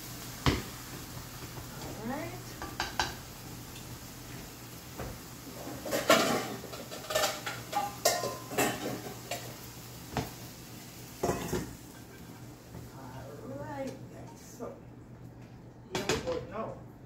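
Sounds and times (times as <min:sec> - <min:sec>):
metal pots and pans clanking: 0:05.5 - 0:09.6, 0:11.2 - 0:12.4.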